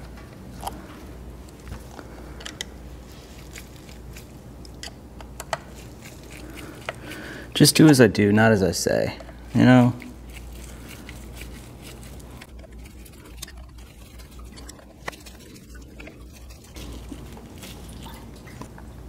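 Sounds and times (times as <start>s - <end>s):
low steady hum: 0.0s - 19.0s
gloved hands rubbing: 9.6s - 18.0s.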